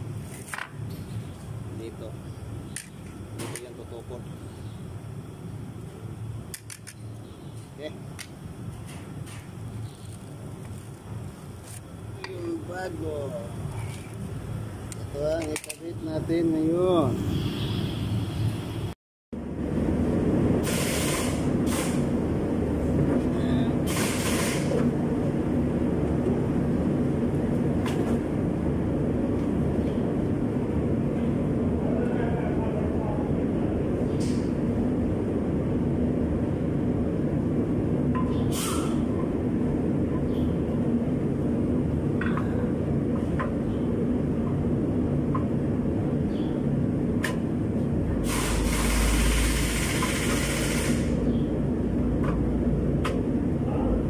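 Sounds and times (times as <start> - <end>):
low mechanical drone: 0.0 - 54.0
loud hiss: 20.6 - 22.2, 23.8 - 24.9, 48.2 - 51.3.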